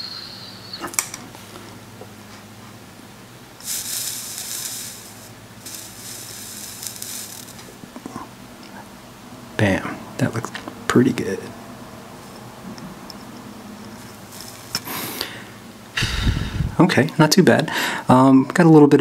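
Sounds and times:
flux sizzling under soldering iron: 0:03.6 - 0:08.0, 0:14.0 - 0:15.3.

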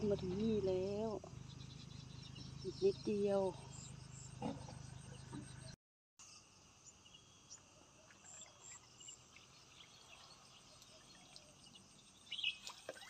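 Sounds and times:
insects chirping: 0:06.2 - 0:13.0.

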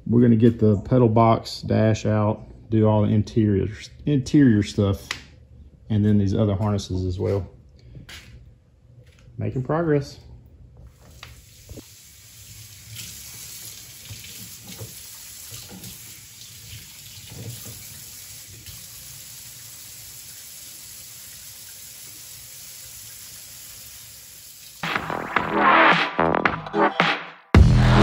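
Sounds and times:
faucet running into sink: 0:11.0 - 0:24.8
electronic music: 0:24.8 - 0:28.0.

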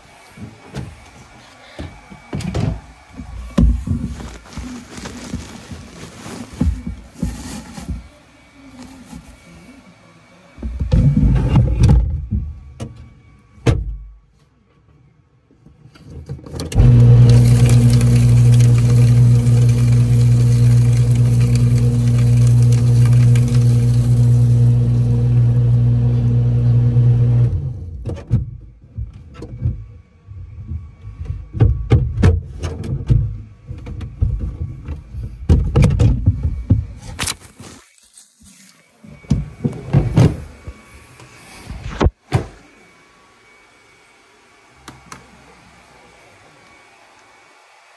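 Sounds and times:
paper shredder motor humming: 0:16.8 - 0:27.8.

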